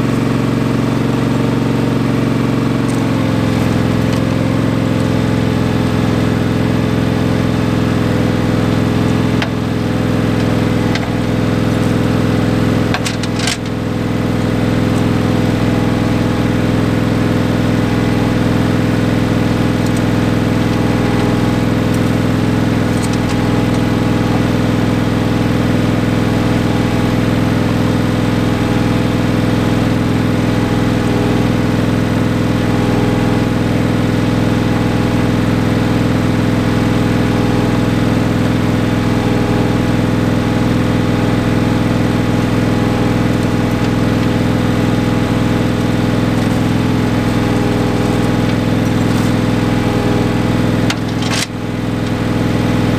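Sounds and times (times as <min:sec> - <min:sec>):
tractor engine running: 0:00.0 - 0:52.9.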